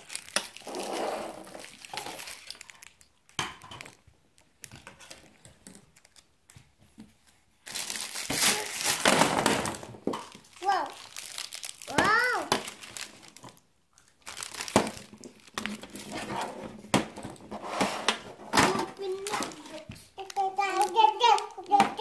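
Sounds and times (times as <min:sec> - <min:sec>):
plastic wrapping crinkling: 0:00.0 - 0:17.5, 0:18.7 - 0:22.0.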